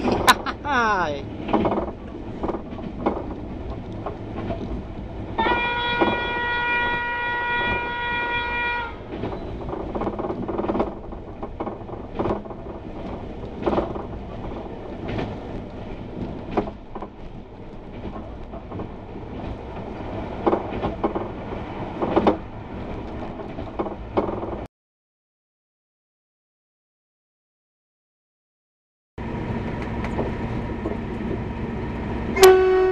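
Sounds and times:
train wheels clacking on rails: 1.3s - 24.7s
train horn blast: 5.4s - 9.0s, 32.4s - 32.9s.

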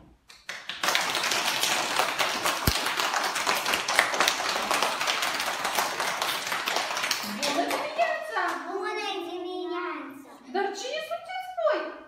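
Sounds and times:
children clapping: 0.3s - 8.8s.

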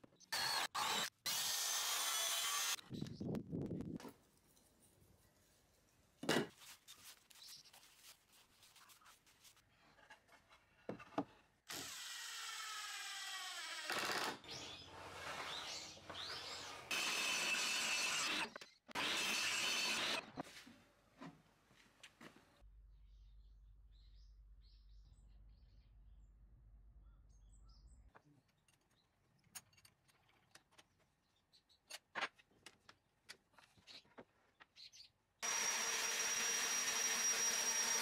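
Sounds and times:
power tool noise: 0.3s - 2.8s, 11.7s - 20.4s, 35.4s - 38.0s
table saw cutting board: 14.6s - 20.4s, 35.4s - 38.0s.

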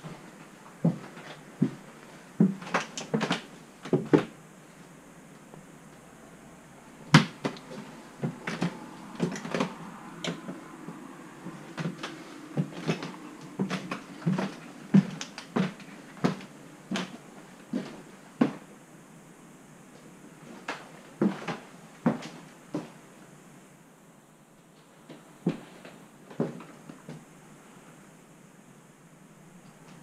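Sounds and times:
footsteps on wooden stairs: 0.8s - 4.3s, 7.2s - 18.6s, 21.2s - 23.0s.

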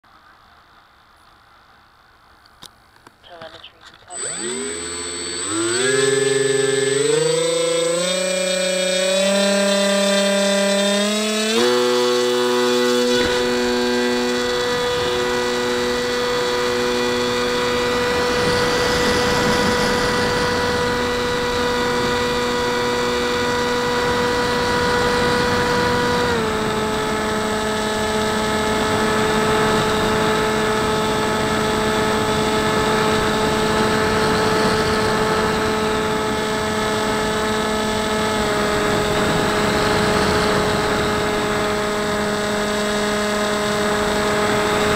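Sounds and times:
electric motor whine: 3.4s - 44.9s
wind rushing over camera: 12.9s - 42.4s.

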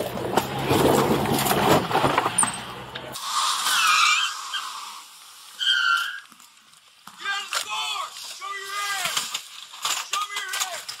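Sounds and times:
knocks and scrapes: 0.0s - 4.2s
high squealing: 3.4s - 6.3s.

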